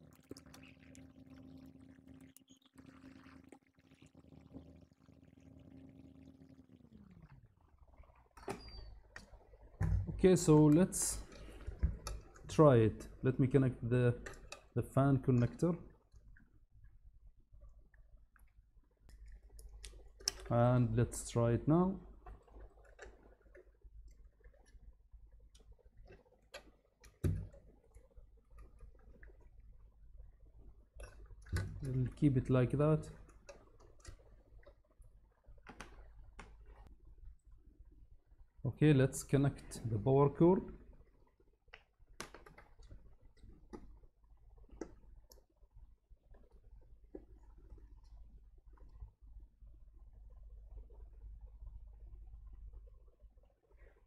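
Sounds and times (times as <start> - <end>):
cables and connectors clicking: 19.1 - 21.1, 41.7 - 44.0.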